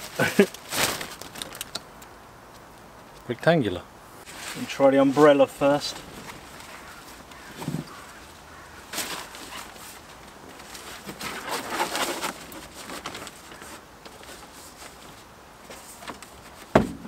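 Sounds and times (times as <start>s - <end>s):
sun blind rustling and crinkling: 0.0s - 17.0s
handling noise: 4.3s - 17.0s.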